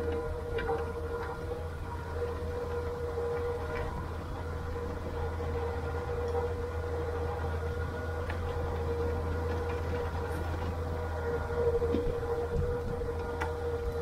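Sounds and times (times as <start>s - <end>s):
steady whine: 0.0s - 14.0s
tractor engine droning: 0.0s - 14.0s.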